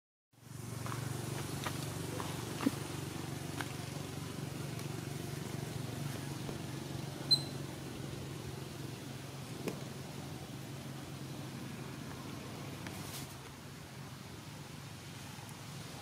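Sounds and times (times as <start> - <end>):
steady low hum: 0.4 - 16.0
short high-pitched peep: 7.3 - 7.6.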